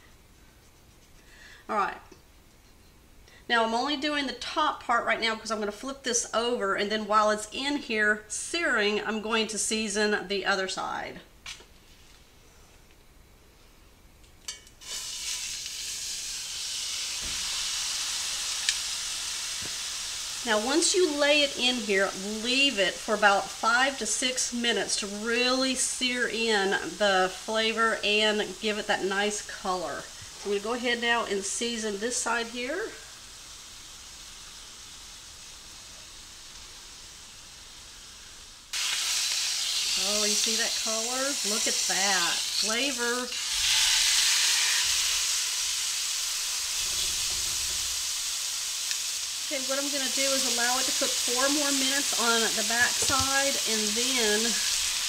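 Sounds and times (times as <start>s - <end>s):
meat sizzling in hot oil: 14.8s - 55.0s.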